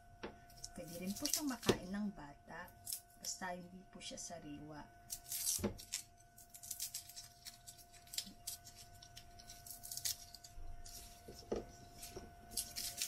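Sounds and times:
garlic skin crackling: 0.5s - 1.9s, 5.1s - 13.0s.

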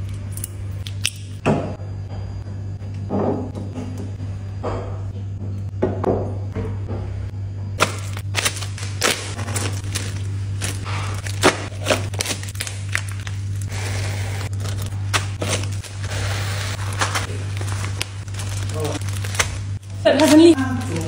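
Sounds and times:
steady low hum: 0.0s - 21.0s
plastic bags crinkling and clicking: 7.8s - 21.0s.

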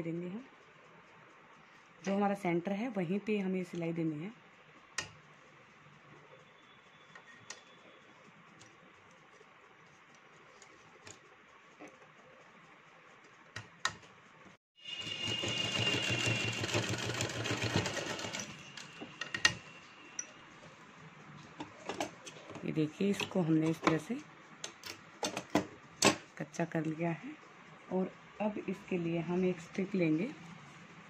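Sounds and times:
sewing machine stitching: 15.0s - 19.6s.

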